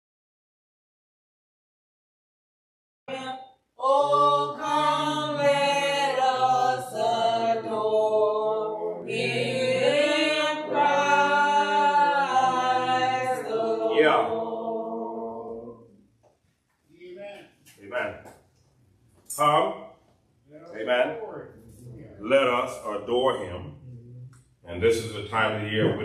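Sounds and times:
church choir singing: 3.1 - 16.0.

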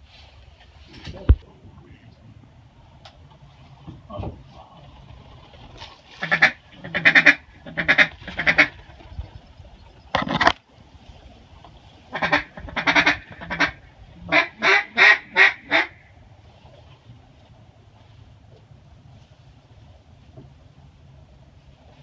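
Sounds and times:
duck quacking: 6.2 - 8.7, 12.1 - 16.1.

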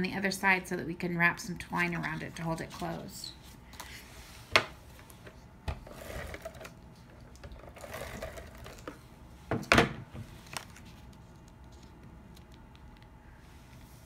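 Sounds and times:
paper rustling and scraping: 1.8 - 4.4, 10.2 - 12.6.

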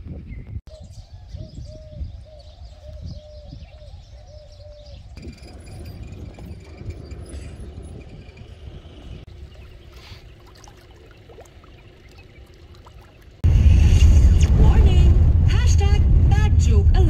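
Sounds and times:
low rumble: 10.5 - 17.0.

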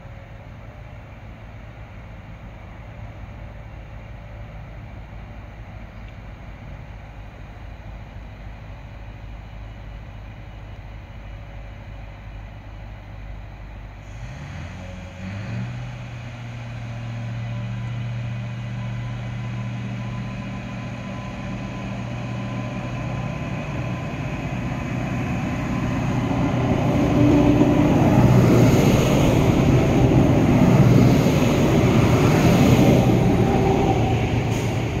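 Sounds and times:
train diesel engine: 0.0 - 35.0
train wheel noise: 16.0 - 35.0.

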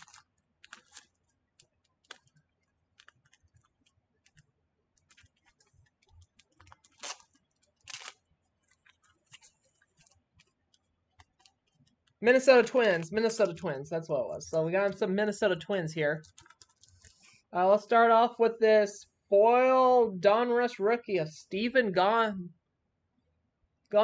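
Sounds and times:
plastic sleeves and tape crinkling: 0.0 - 13.7, 16.2 - 17.4.

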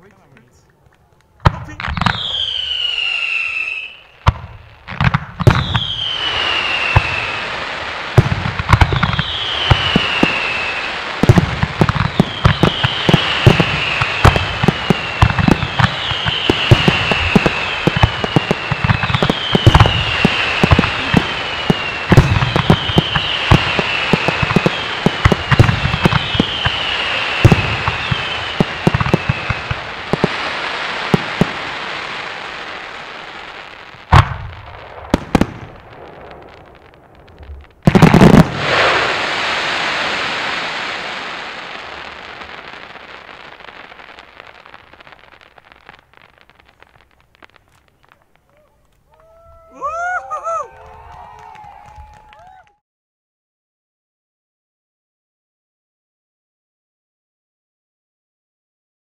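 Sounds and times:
fireworks bangs: 0.0 - 52.7
fireworks crackle: 0.0 - 52.7
falling whistles: 2.0 - 4.2, 5.5 - 7.6, 8.8 - 11.1, 12.0 - 31.2.

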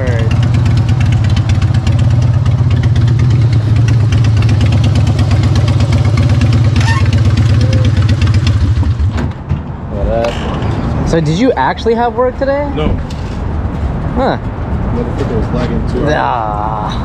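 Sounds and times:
motorcycle engine idling: 0.0 - 9.1.

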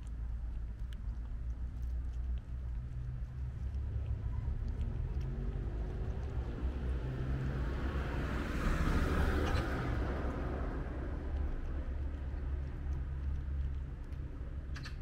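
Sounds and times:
low rumble: 0.0 - 15.0
car passing: 3.6 - 14.6.

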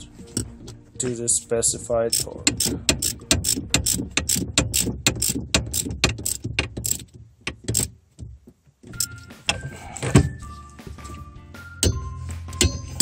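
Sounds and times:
ratchet wrench clicking: 2.1 - 7.9.

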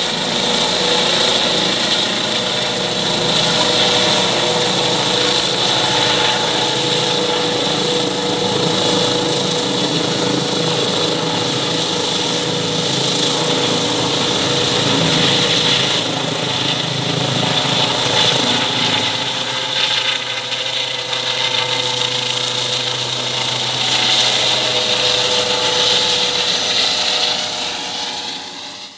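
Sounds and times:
helicopter turbine whine: 0.0 - 28.9.

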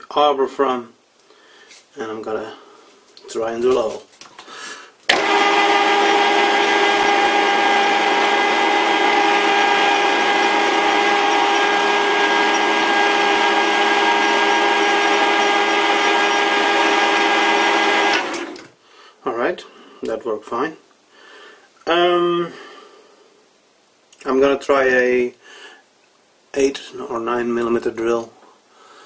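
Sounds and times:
metal lathe running with whine: 5.1 - 18.6.

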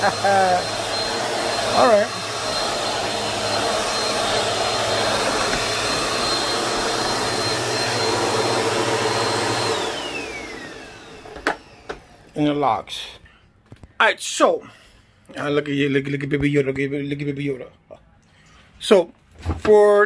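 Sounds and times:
vacuum cleaner running: 0.0 - 12.4.

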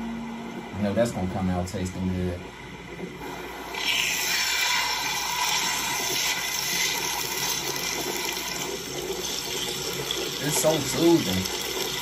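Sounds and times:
water running: 3.2 - 12.0.

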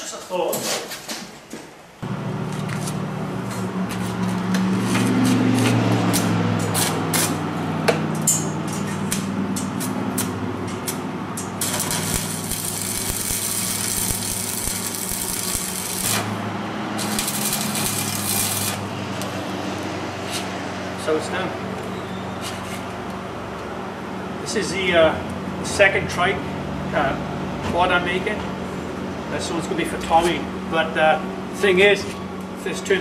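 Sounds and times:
welding arc crackling: 2.0 - 7.4, 9.8 - 19.9
welder machine hum: 2.0 - 8.5, 9.1 - 21.2
hissing welds: 11.6 - 19.4.

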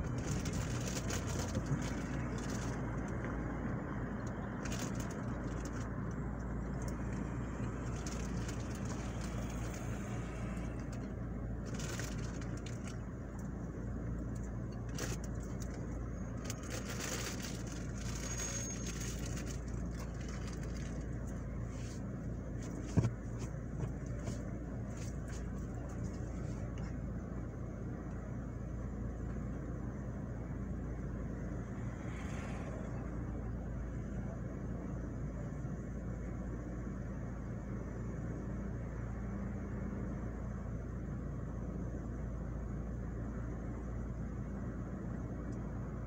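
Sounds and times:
car engine idling: 0.0 - 46.0
light traffic noise: 0.0 - 46.0.

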